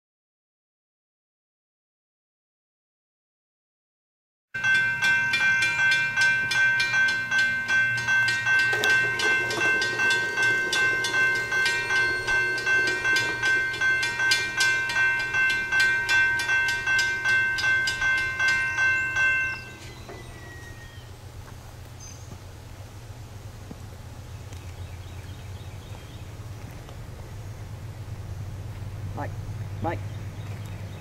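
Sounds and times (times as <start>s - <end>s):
railroad crossing bell ringing: 4.6s - 21.3s.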